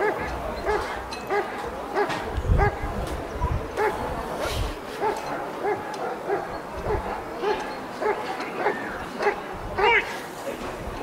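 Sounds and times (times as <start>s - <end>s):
dog barking: 0.0s - 2.9s, 3.8s - 4.0s, 5.0s - 10.1s.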